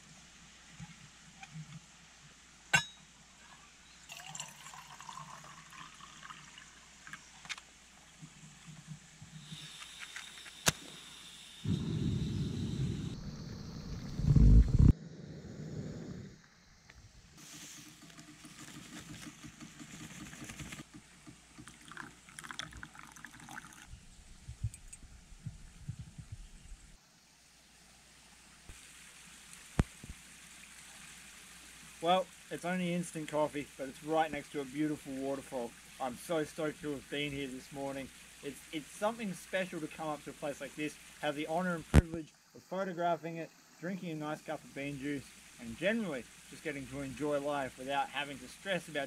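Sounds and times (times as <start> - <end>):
water pouring into metal mug: 4.1 - 7.2, 21.6 - 23.9
low thumps: 11.7 - 14.9.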